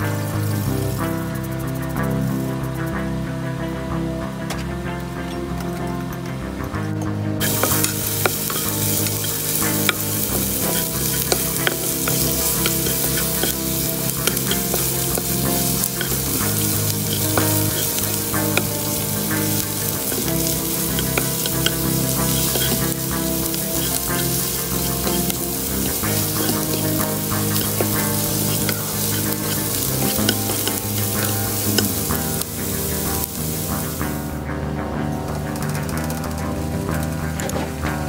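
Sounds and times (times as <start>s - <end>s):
onion and garlic sizzling in oil: 0.0s - 2.5s, 7.4s - 34.4s
spatula scraping a pot: 7.4s - 34.1s.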